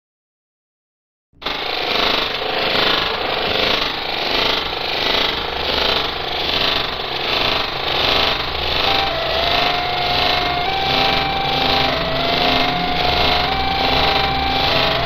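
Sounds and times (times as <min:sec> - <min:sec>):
distorted electronic noise: 0:08.8 - 0:15.0
thin steady tone: 0:08.8 - 0:15.0.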